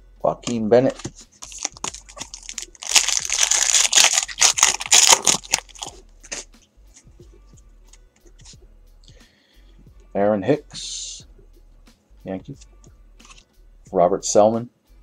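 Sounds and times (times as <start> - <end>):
cards clicking and rustling: 0.5 - 6.4
foil wrapper tearing and crinkling: 1.4 - 6.5.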